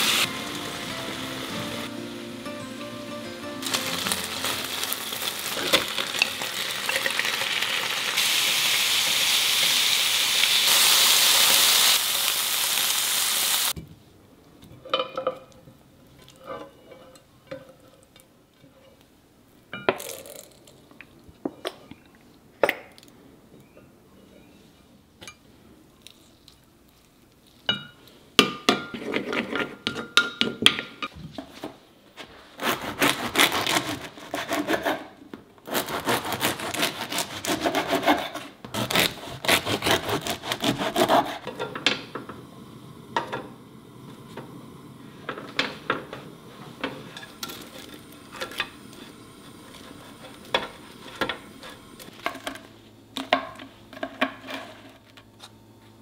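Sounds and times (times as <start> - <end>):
chicken sizzling in a pan: 0.0 - 13.8, 41.6 - 52.2
bread knife sawing crusty loaf: 32.6 - 41.5.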